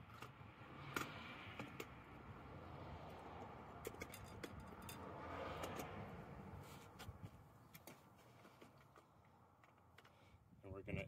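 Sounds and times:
clicks and small metal knocks: 0:00.0 - 0:02.0, 0:03.7 - 0:06.0.

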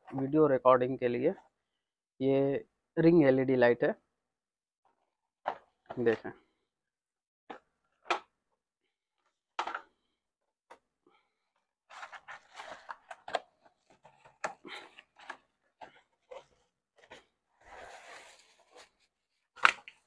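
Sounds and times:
cardboard rustling: 0:11.9 - 0:20.0.

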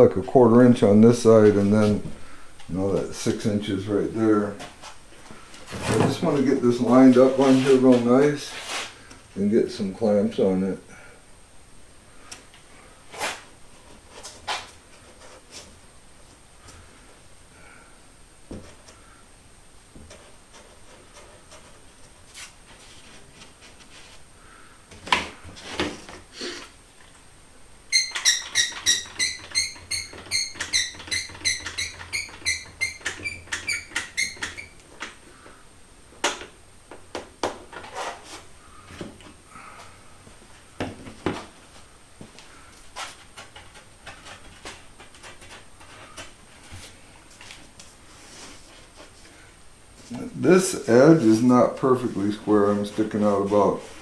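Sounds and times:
clunks and knocks of handling: 0:05.6 - 0:06.5, 0:40.8 - 0:41.6.

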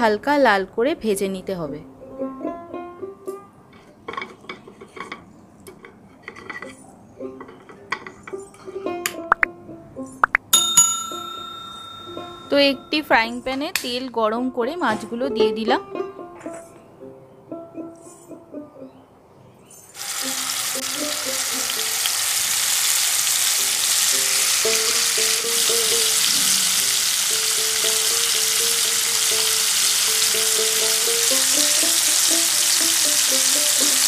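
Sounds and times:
fish sizzling in hot oil: 0:20.0 - 0:34.0.

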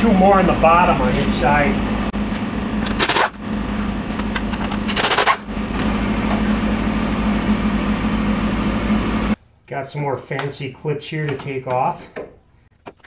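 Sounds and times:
machine hum with low pulse: 0:00.0 - 0:09.4
pneumatic impact wrench burst: 0:04.9 - 0:05.5.

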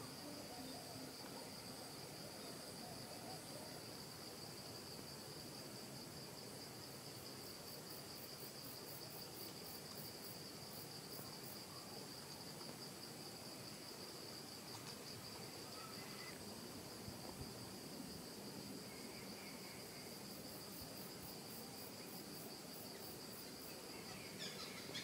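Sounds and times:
insects trilling: 0:05.8 - 0:25.0.

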